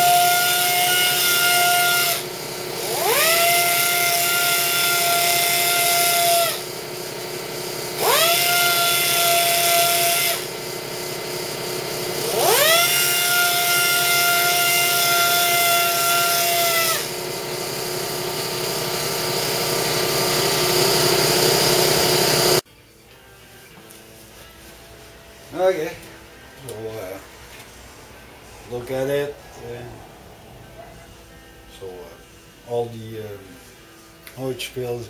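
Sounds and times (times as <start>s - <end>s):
pneumatic polisher whine: 0.0s - 22.6s.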